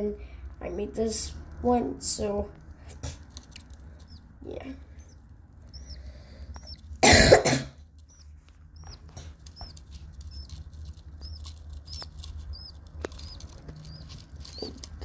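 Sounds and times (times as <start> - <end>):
baby birds chirping: 3.0 - 7.1, 8.0 - 15.0
person coughing: 7.0 - 7.8.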